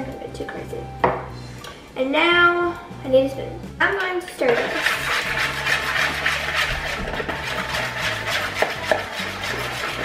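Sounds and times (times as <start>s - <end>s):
metal spoon scraping bowl: 4.4s - 10.0s.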